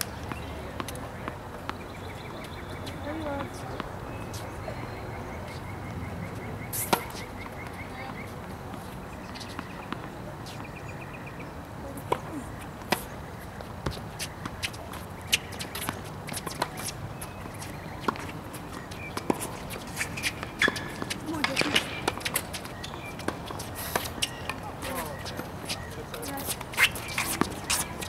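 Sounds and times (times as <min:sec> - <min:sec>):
tennis balls struck by rackets: 0:06.6 - 0:10.8, 0:12.0 - 0:28.0
balls bouncing on hard court: 0:12.0 - 0:28.0.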